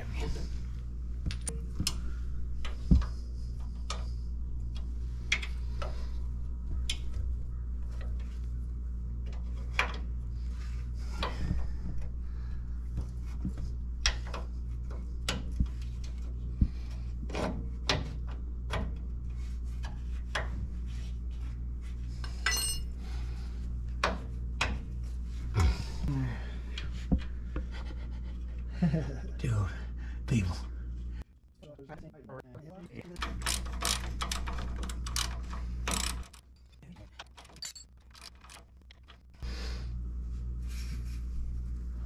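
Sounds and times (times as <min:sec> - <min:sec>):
tools clinking and knocking: 0:22.4 - 0:22.9, 0:33.2 - 0:39.3.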